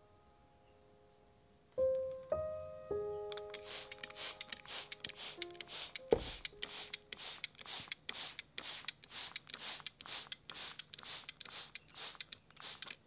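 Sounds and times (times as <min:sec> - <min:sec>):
spray bottle hissing sprays: 0:03.4 - 0:13.0
sharp knock: 0:06.1 - 0:06.5.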